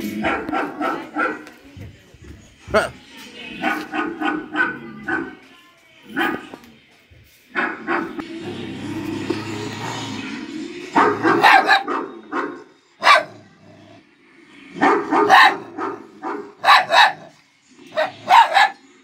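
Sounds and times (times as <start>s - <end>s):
puppy barking: 0.1s - 1.5s, 3.6s - 5.4s, 7.5s - 8.2s, 10.9s - 13.5s, 14.8s - 18.9s.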